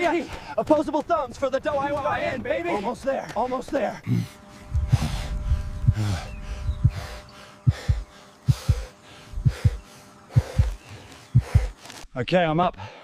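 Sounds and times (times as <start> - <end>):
man breathing heavily: 0.1 - 0.6, 2.6 - 12.0, 12.7 - 13.0
heartbeat thumps: 4.1 - 11.8.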